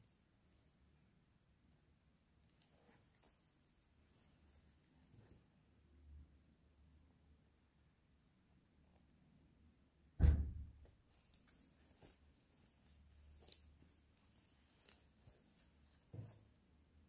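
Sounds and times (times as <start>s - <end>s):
fabric rustling and light ticks: 2.4s - 5.5s, 11.0s - 16.6s
soft thump: 10.2s - 10.8s.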